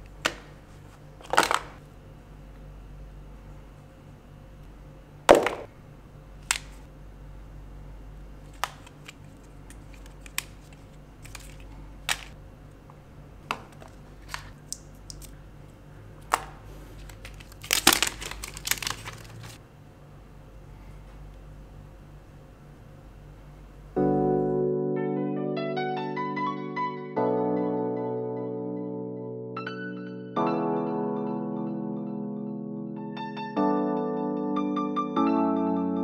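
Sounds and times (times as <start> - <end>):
steady low hum: 0.0 - 24.7
packaging rustling and crinkling: 0.7 - 1.8, 8.4 - 12.4, 13.6 - 15.4, 16.3 - 19.6.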